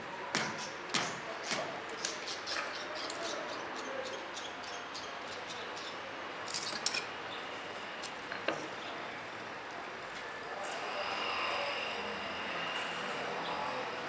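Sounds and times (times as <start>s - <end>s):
workshop noise hiss: 4.7s - 14.0s
light metallic clicks and clinks: 6.4s - 7.1s.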